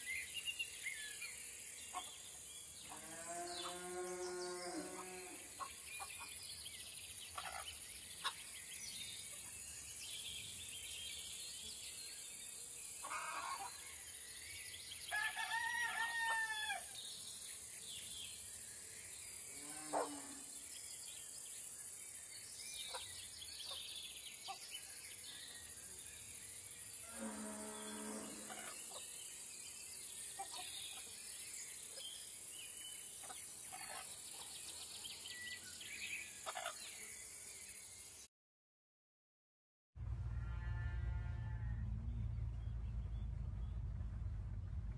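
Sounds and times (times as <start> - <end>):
rooster crowing: 15.1 - 16.9
high insect hiss: 15.9 - 38.3.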